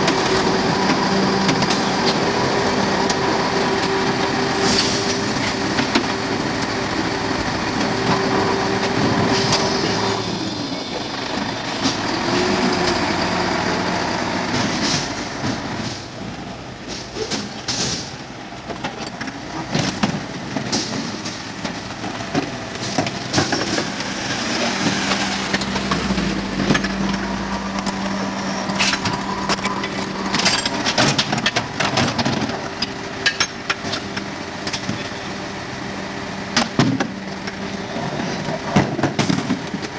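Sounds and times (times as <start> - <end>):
garbage truck engine and hydraulics: 0.0 - 39.9
metal clanks and knocks of bins: 14.5 - 16.1, 16.8 - 28.0, 28.7 - 35.2, 36.5 - 37.2, 38.0 - 39.9.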